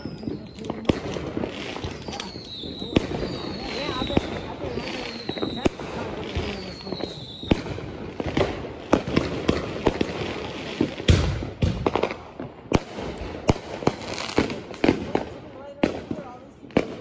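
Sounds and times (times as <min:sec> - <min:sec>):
fireworks bangs and pops: 0:00.0 - 0:17.0
deep firework boom: 0:02.8 - 0:17.0.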